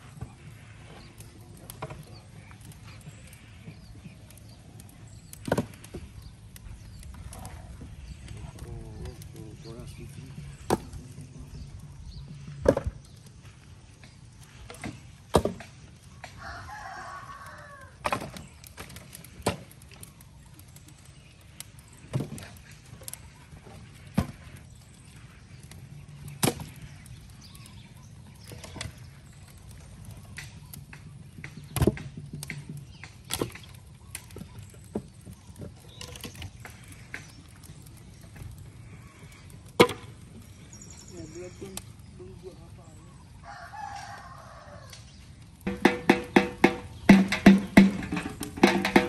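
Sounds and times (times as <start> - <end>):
logs knocking onto wood pile: 12.6 - 13.0, 14.7 - 15.7, 18.0 - 19.7, 31.6 - 33.7, 39.8 - 40.1, 45.7 - 49.0
rooster crowing: 16.3 - 18.0, 43.4 - 45.0.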